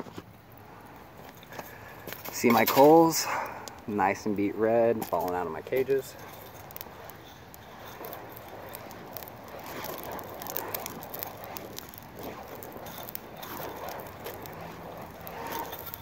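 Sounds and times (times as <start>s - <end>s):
charcoal crackling and clicking: 0.0s - 16.0s
swinging whoosh: 7.8s - 16.0s.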